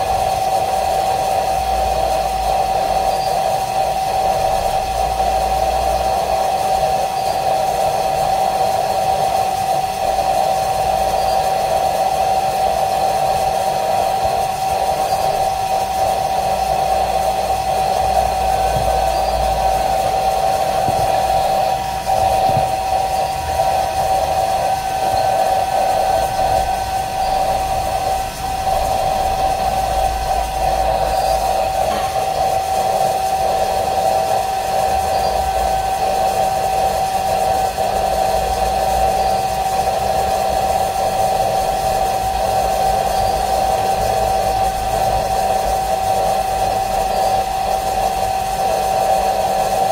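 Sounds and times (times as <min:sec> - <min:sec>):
hair dryer running: 0:00.0 - 0:49.9.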